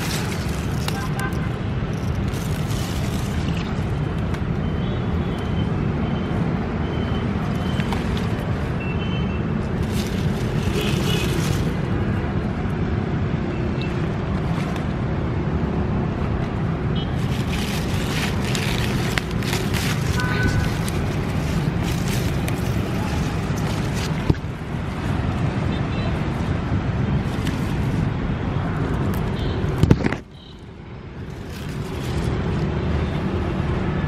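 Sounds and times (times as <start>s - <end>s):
leaves rustling: 0.0s - 4.1s, 7.4s - 8.8s, 9.4s - 12.6s, 17.1s - 25.5s, 26.3s - 29.4s, 31.2s - 32.8s.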